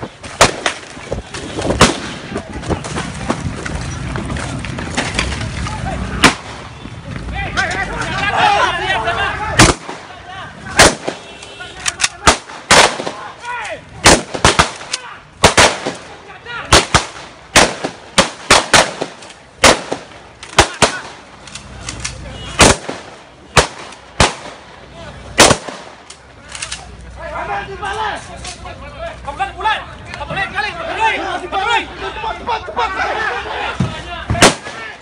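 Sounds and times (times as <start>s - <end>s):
sharp loud bangs: 0.0s - 2.4s, 6.2s - 6.7s, 9.6s - 11.4s, 12.1s - 13.3s, 14.0s - 21.2s, 22.6s - 24.7s, 25.4s - 26.1s, 34.3s - 35.0s.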